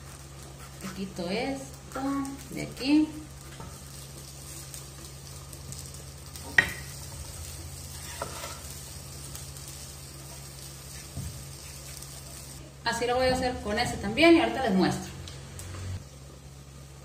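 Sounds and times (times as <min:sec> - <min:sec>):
potatoes sizzling in a pan: 0:00.0 - 0:17.0
knife on wooden cutting board: 0:08.0 - 0:08.6.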